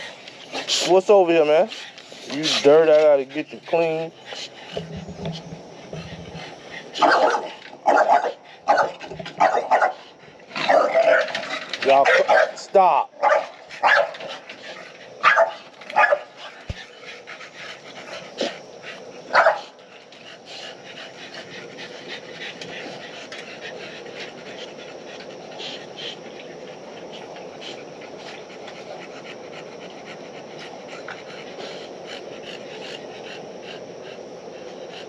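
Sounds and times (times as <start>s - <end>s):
dog panting: 0.0s - 12.4s, 13.7s - 35.0s.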